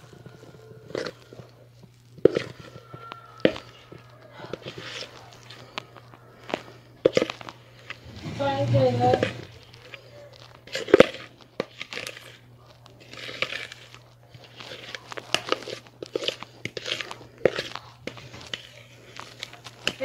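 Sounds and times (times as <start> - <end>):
spatula scraping batter: 0.0 - 20.0
spatula tapping bowl: 2.2 - 5.7.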